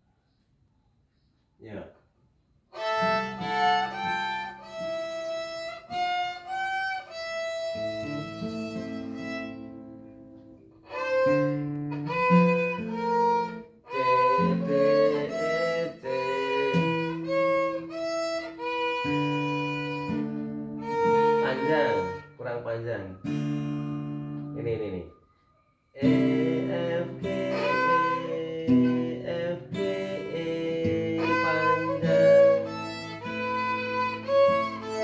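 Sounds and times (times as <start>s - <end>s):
violin playing melody: 2.7s - 9.8s, 10.8s - 22.6s, 26.0s - 35.0s
acoustic guitar chords: 2.8s - 25.0s, 26.0s - 35.0s.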